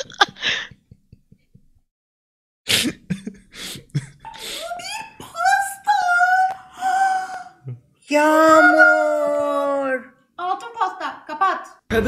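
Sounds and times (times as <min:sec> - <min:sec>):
person wailing: 0:08.1 - 0:10.0.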